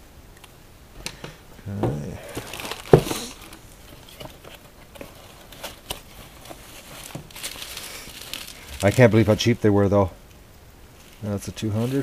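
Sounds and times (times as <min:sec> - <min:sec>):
plastic bag ripping: 0:02.2 - 0:03.6, 0:05.4 - 0:09.6, 0:11.1 - 0:12.0
plastic wrap crinkling: 0:02.2 - 0:10.1, 0:10.9 - 0:12.0.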